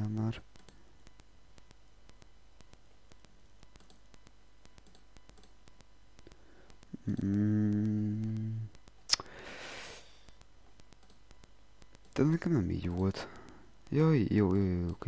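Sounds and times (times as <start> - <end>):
computer mouse clicking: 0.0 - 9.3, 10.2 - 15.0
person humming: 6.9 - 10.0.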